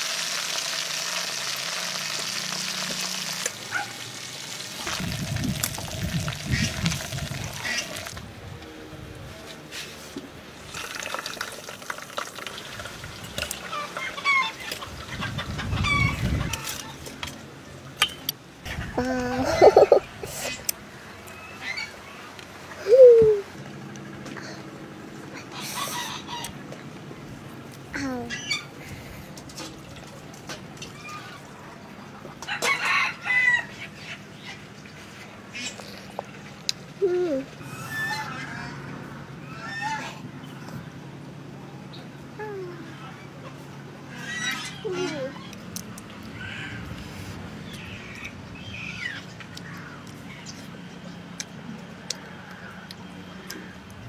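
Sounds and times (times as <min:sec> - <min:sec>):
chicken clucking and squawking: 0:13.6 - 0:17.0, 0:18.7 - 0:20.3, 0:25.3 - 0:26.6, 0:37.6 - 0:40.7, 0:42.9 - 0:45.6.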